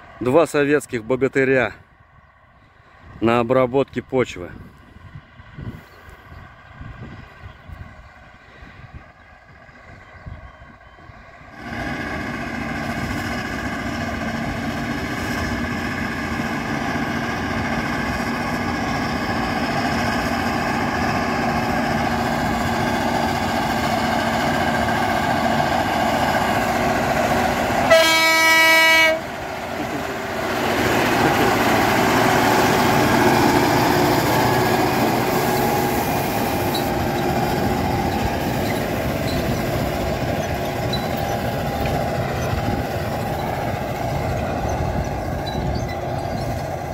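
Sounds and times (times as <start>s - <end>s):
tractor diesel engine under load: 2.9s - 46.9s
horn: 27.9s - 29.3s.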